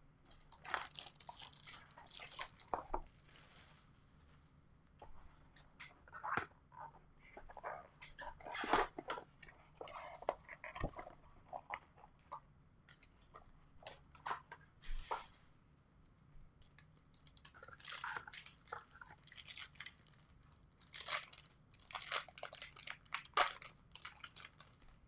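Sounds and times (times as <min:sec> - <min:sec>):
clicks and crackles: 0:00.3 - 0:03.8, 0:16.6 - 0:25.0
plastic and foil wrapping tearing: 0:00.3 - 0:03.8, 0:17.1 - 0:24.9.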